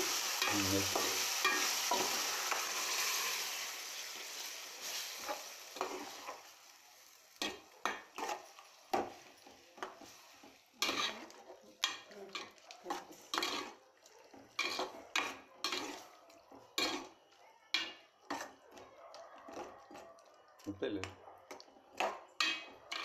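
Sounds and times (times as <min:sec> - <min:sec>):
metal ladle scraping metal pot: 0:12.3 - 0:13.8, 0:14.6 - 0:16.0.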